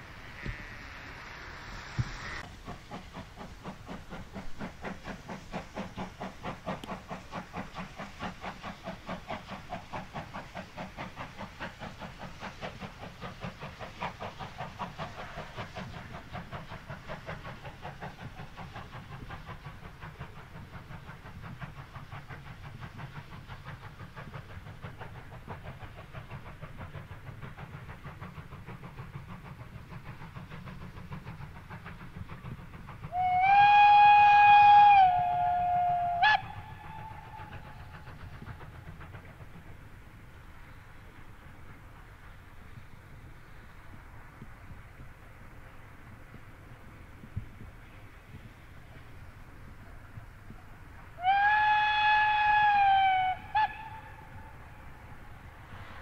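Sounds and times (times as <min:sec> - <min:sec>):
steam locomotive exhaust beats: 0:00.0 - 0:56.0
steam whistle: 0:33.1 - 0:37.6, 0:51.2 - 0:54.7.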